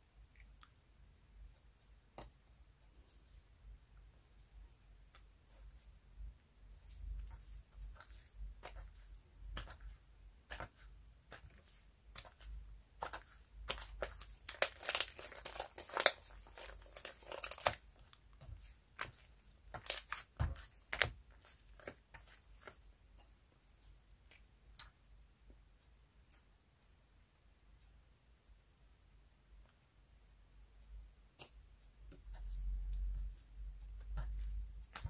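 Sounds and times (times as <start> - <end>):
slime crackling and popping: 12.1 - 18.2, 19.0 - 22.7.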